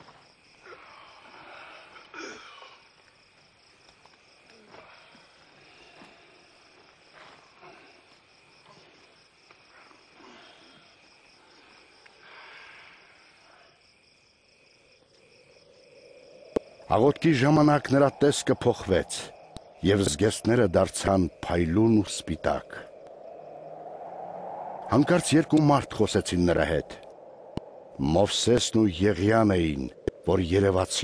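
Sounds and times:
crickets chirring: 0:00.0 - 0:31.0
rustles: 0:02.8 - 0:13.7.

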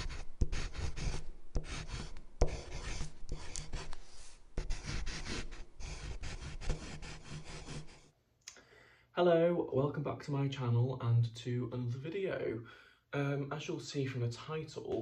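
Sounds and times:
pen scratching on paper: 0:00.0 - 0:08.1
pen tapping: 0:00.5 - 0:04.0.

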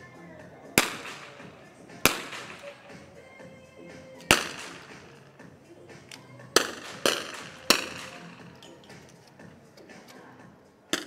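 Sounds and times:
rifle shots echoing: 0:00.8 - 0:03.2, 0:04.2 - 0:05.4, 0:06.5 - 0:08.6.

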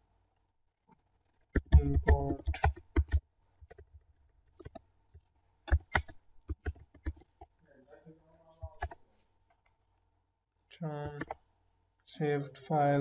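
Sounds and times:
keyboard keystrokes clicking: 0:05.7 - 0:07.3.

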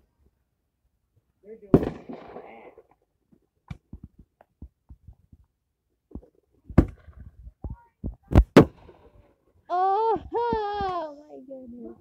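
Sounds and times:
fireworks popping and thudding: 0:01.6 - 0:09.4.

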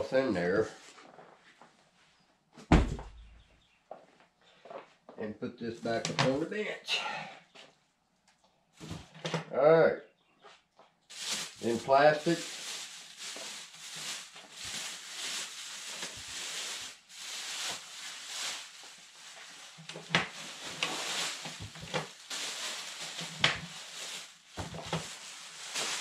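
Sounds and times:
plastic bag rustling: 0:11.1 - 0:26.0.

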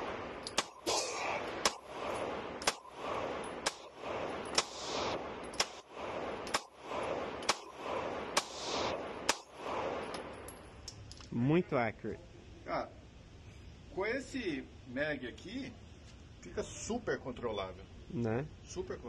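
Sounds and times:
pistol shots with echo: 0:00.0 - 0:10.5.

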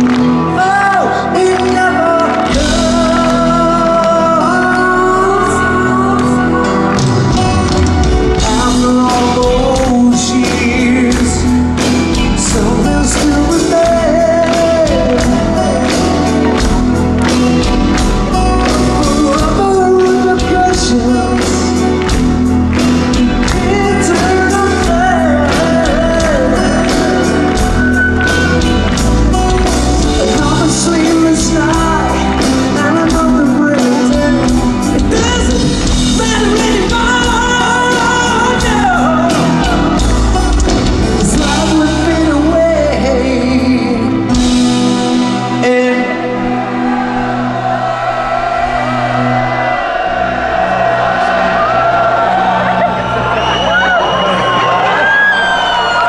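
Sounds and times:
man singing: 0:00.0 - 0:47.0
drums: 0:00.0 - 0:56.0
electric guitars: 0:00.0 - 0:56.0.

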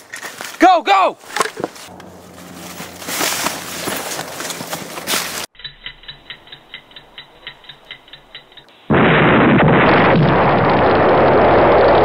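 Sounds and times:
timer ticking quickly: 0:05.6 - 0:08.7
fireball rushing: 0:08.9 - 0:12.0
loud explosion: 0:08.9 - 0:12.0.

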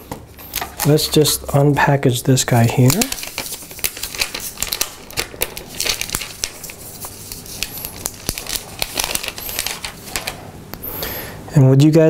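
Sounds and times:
plastic film crinkling: 0:00.4 - 0:01.7, 0:02.4 - 0:10.4.

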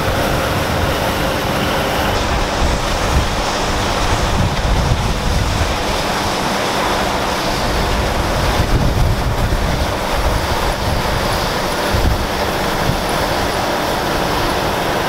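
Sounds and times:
combine harvester engine drone: 0:00.0 - 0:15.0
wind rumbling on microphone: 0:00.0 - 0:15.0.

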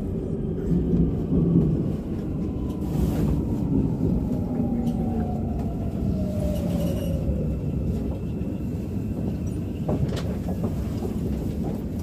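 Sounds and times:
subway train rumbling: 0:00.0 - 0:12.0
rail clicks: 0:04.2 - 0:12.0.

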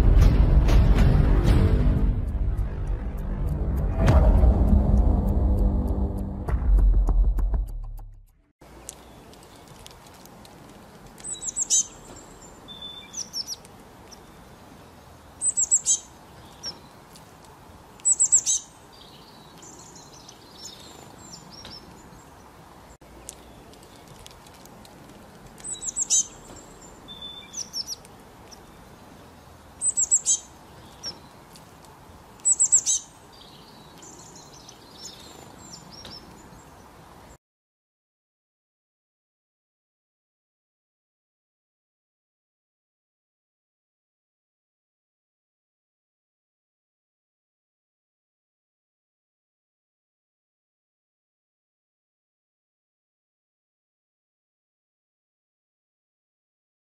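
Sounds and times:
small songbird chirping: 0:08.7 - 0:37.4.

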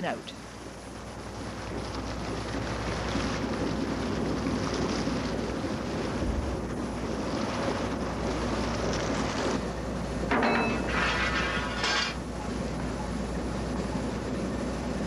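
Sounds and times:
boat engine running: 0:00.0 - 0:15.0
water washing against hull: 0:00.0 - 0:15.0
wind on microphone: 0:01.5 - 0:09.8.

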